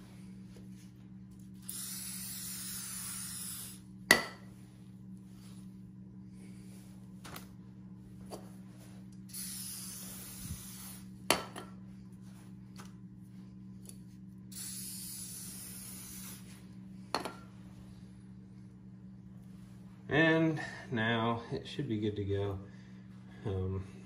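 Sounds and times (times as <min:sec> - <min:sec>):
steady low hum: 0:00.0 - 0:24.0
aerosol can spraying: 0:01.6 - 0:03.8, 0:09.3 - 0:11.1, 0:14.5 - 0:16.6.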